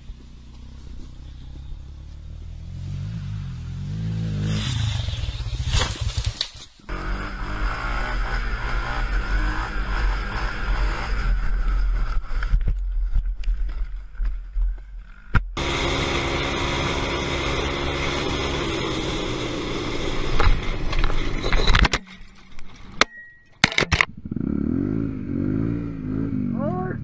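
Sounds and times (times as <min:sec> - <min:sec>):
atv engine running: 0:00.0 - 0:13.8, 0:14.4 - 0:21.4, 0:24.0 - 0:26.9.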